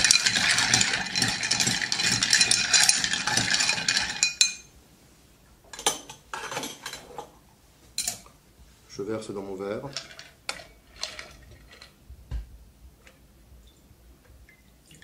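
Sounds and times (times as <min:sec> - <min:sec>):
spoon stirring ice in glass: 0:00.0 - 0:04.7.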